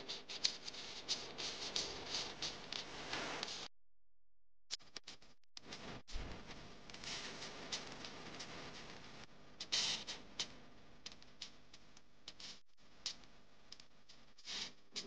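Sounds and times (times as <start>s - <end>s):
faint irregular clicks: 6.9s - 15.0s.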